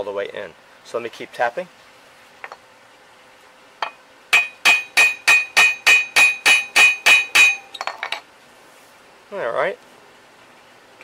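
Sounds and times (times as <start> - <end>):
hammer blows on metal: 3.8 - 7.9.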